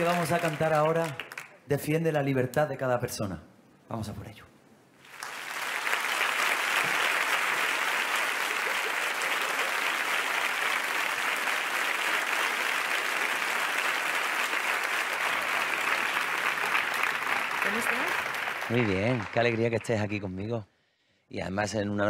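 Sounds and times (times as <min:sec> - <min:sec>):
audience applauding: 0:00.0 - 0:01.6, 0:05.0 - 0:20.5.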